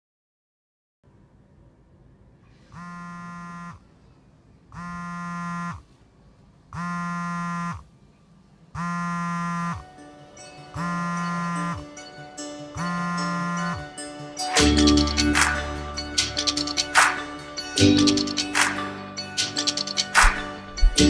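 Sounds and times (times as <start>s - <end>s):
phone vibrating on wooden table: 2.7s - 3.9s, 4.7s - 5.9s, 6.8s - 7.9s, 8.8s - 9.9s, 10.8s - 11.9s, 12.8s - 13.9s.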